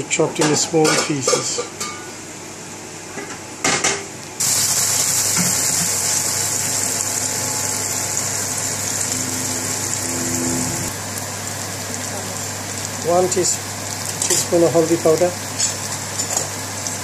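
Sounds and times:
onions sizzling in a pan: 4.4 - 17.0.

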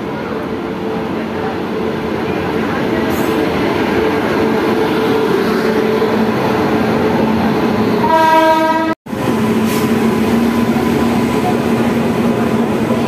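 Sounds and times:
train passing with rumble: 0.0 - 13.0
train horn: 8.0 - 9.0.

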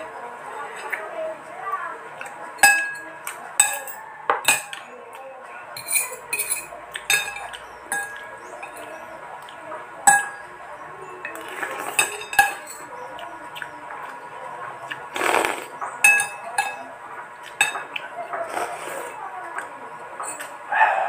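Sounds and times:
cutlery clinking against bowl: 2.2 - 5.2, 5.8 - 10.5, 11.2 - 14.2, 14.8 - 20.6.

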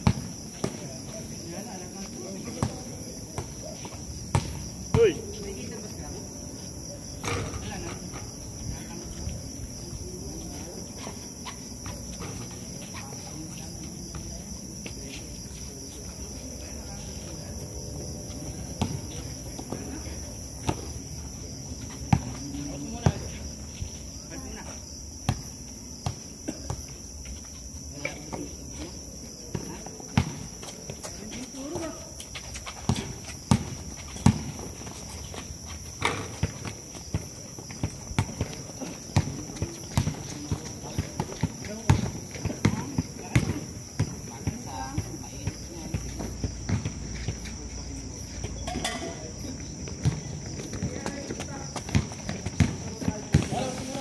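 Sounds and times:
shoes scuffing on a court: 0.0 - 6.0, 6.7 - 54.0
night insects chirring: 0.0 - 54.0
basketball bouncing on hard court: 4.3 - 4.7, 32.9 - 34.7, 36.0 - 47.0, 50.0 - 53.7
running footsteps: 49.4 - 54.0.

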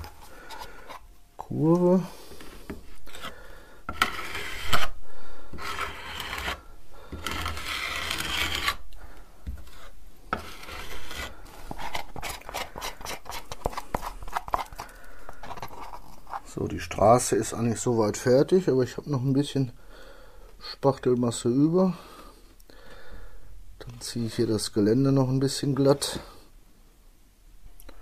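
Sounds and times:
spatula scraping paste: 0.0 - 1.1, 2.2 - 8.9, 9.5 - 16.6.

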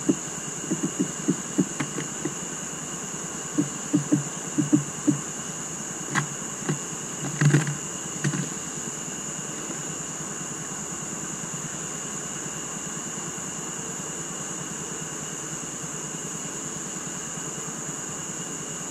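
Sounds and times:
steady high hiss: 0.0 - 11.8
birds thumping on wooden feeder: 0.7 - 2.4, 3.6 - 5.2, 6.1 - 8.6.

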